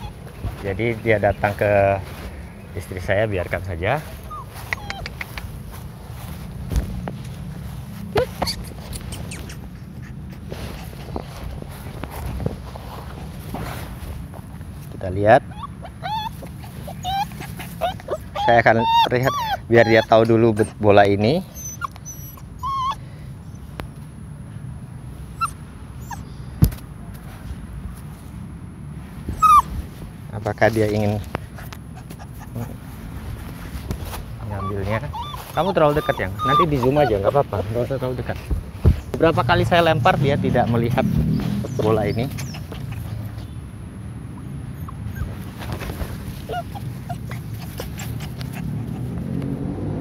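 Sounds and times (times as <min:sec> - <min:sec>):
puppy whimpering: 0:00.0 - 0:01.7, 0:03.2 - 0:05.7, 0:08.1 - 0:11.0, 0:15.4 - 0:23.0, 0:25.4 - 0:26.3, 0:29.3 - 0:29.7, 0:31.5 - 0:32.9, 0:34.4 - 0:38.6, 0:41.4 - 0:43.6, 0:44.3 - 0:49.3.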